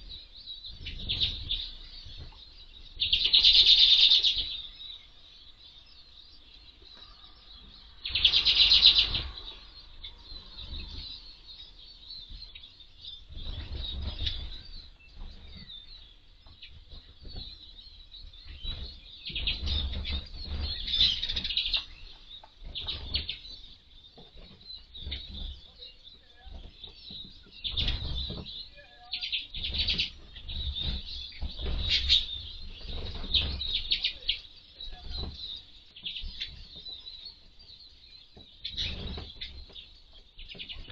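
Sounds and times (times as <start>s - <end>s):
small birds twittering: 0.0s - 40.9s
wings fluttering: 29.2s - 35.4s.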